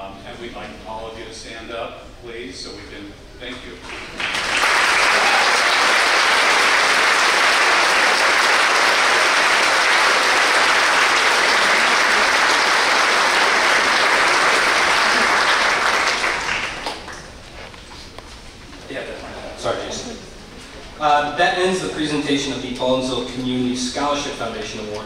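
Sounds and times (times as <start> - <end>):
large audience applauding: 3.8 - 17.4.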